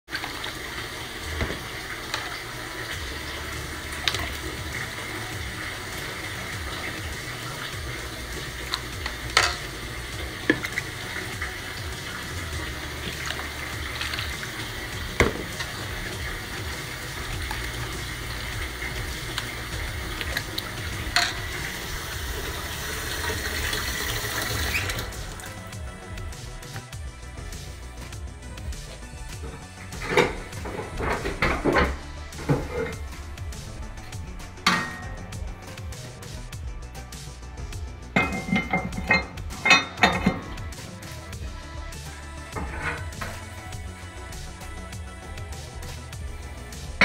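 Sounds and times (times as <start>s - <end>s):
water sloshing in steel tub: 0.1s - 26.8s, 27.4s - 36.3s, 38.1s - 41.4s, 42.1s - 47.0s
knocks against tub: 15.1s - 15.6s.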